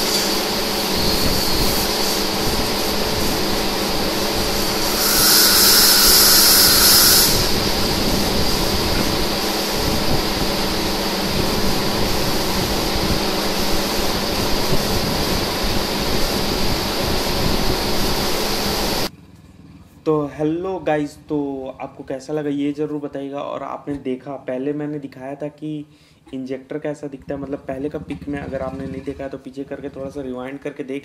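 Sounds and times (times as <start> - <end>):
loud high hiss: 0.0 - 19.1
workshop machinery din: 0.0 - 19.1.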